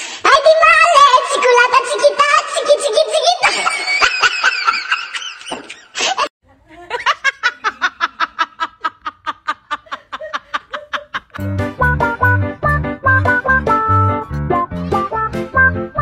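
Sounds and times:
person laughing: 3.4s - 11.4s
music with a steady beat: 11.4s - 16.0s.

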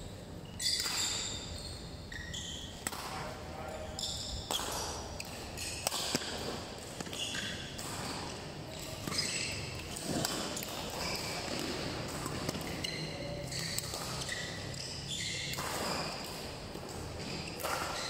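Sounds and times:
shoes squeaking on court: 0.0s - 18.0s
racket striking shuttlecock: 4.5s - 9.2s, 15.5s - 17.0s.

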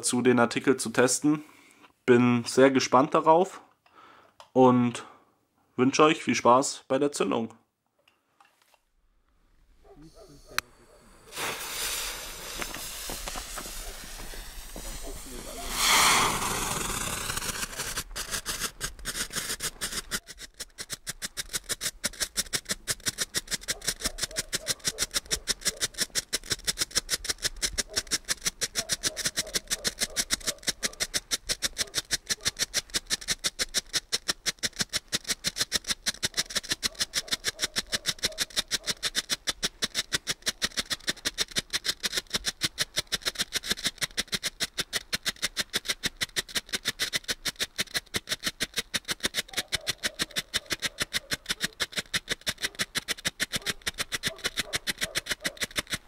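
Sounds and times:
firework strobe popping: 10.0s - 56.0s
firework hissing: 10.1s - 20.4s.

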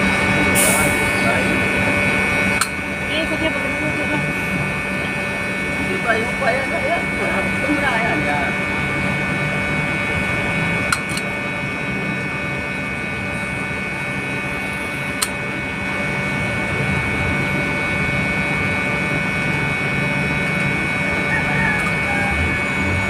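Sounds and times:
machinery humming: 0.0s - 23.0s.

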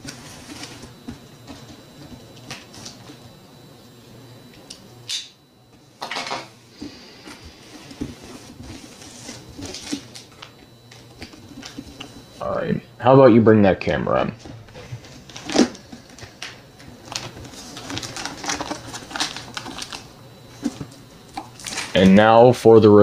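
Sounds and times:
hands scraping cardboard box: 6.8s - 10.2s.

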